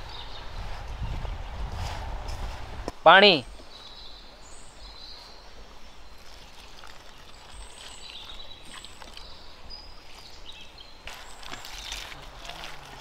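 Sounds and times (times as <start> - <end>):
water trickling into metal bowl: 6.2 - 9.4.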